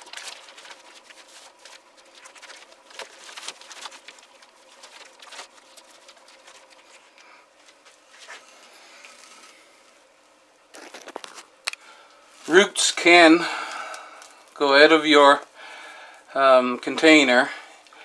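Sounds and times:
plastic sheeting crinkling and rustling: 0.0 - 10.0, 10.7 - 11.6.

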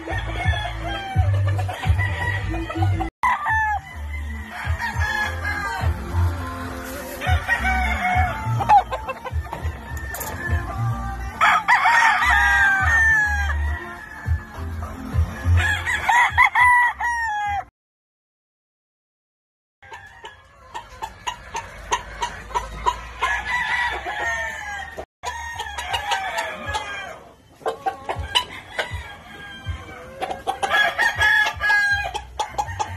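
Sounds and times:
music with heavy bass beat: 0.0 - 17.7
roosters crowing: 0.0 - 17.7, 19.8 - 32.9.

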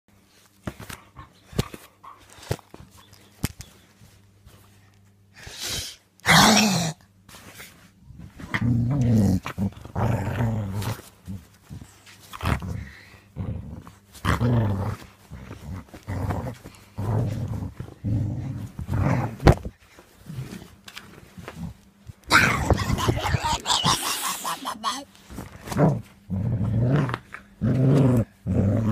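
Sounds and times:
dog growling: 8.4 - 11.5, 12.3 - 19.6, 21.5 - 25.1, 25.7 - 28.9.

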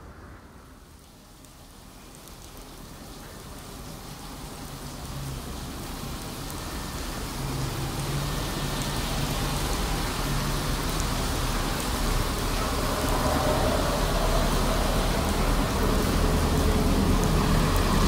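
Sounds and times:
steady rain: 0.0 - 18.0
diesel locomotive engine hum: 11.6 - 18.0.

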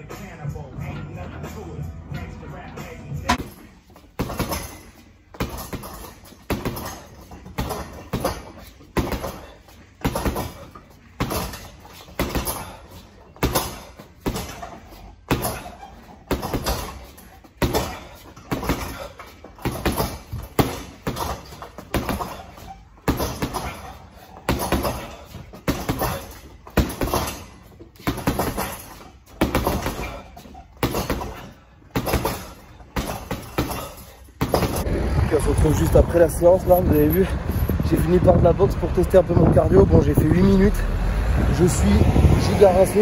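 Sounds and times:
gloves punching heavy bag: 3.3 - 34.9.

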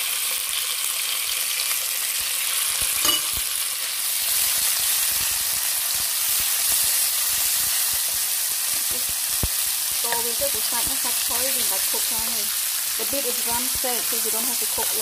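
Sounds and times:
meat sizzling in hot oil: 0.0 - 15.0.

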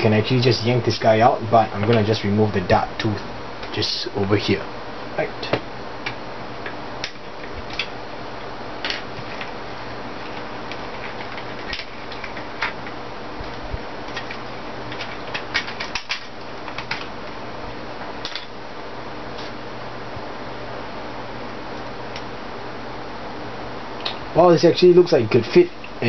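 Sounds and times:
steady hiss: 0.0 - 26.0
plastic parts clicking: 14.1 - 17.1.

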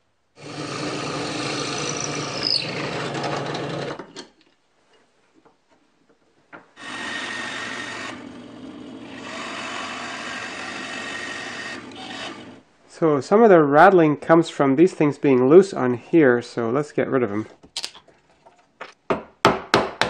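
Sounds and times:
wooden lathe running: 0.4 - 4.1, 6.8 - 12.6
drill press boring into wood: 0.4 - 4.2, 6.8 - 12.6.

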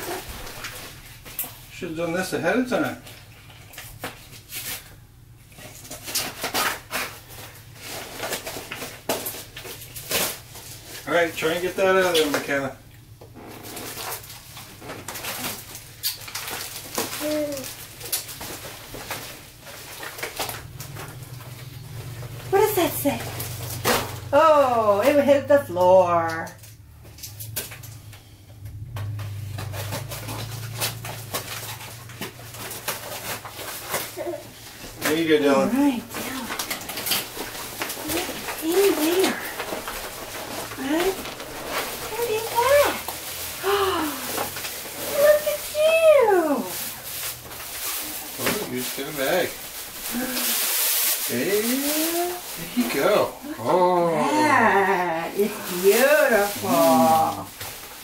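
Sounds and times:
low steady hum: 0.0 - 58.0
plastic packaging crinkling: 5.6 - 25.6, 28.8 - 58.0
fabric rustling: 29.0 - 53.6, 54.2 - 58.0.

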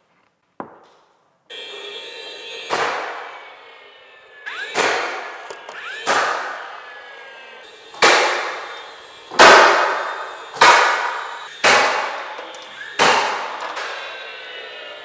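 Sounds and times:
short rising whine: 1.5 - 15.0
nail gun shots: 2.7 - 3.2, 4.6 - 5.4, 6.0 - 6.6, 8.0 - 8.6, 9.4 - 12.3, 13.0 - 13.9.

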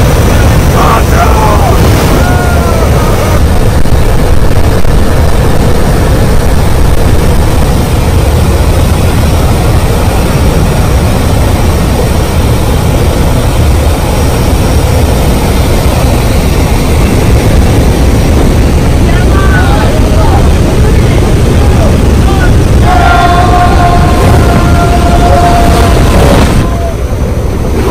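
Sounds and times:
aircraft engine noise: 0.0 - 27.9
wind rushing: 0.0 - 27.9.

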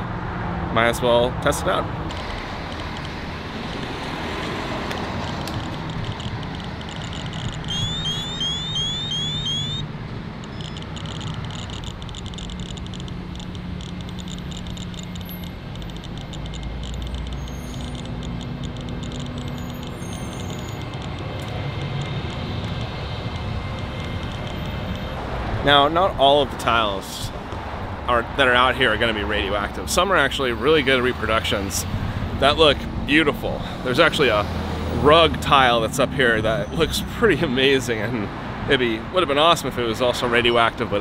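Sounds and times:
road traffic: 0.0 - 41.0
radiation detector rapid clicking: 2.1 - 25.3
rising beeps: 5.8 - 24.9.

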